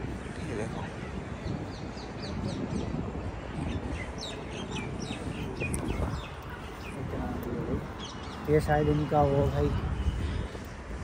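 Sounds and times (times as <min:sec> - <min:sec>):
small birds chirping: 0:00.5 - 0:10.1.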